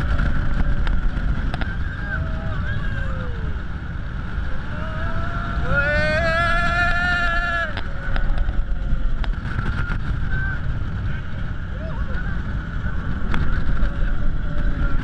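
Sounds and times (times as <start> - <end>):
roller coaster train rumbling: 0.0 - 15.0
wind rushing over microphone: 0.0 - 15.0
rider screaming: 4.4 - 8.0.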